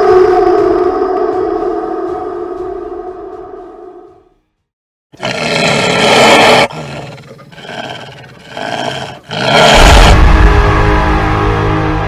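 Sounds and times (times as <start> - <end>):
deep low rumble: 0.0 - 4.5
rough growling: 5.2 - 10.2
monster roar: 5.2 - 10.3.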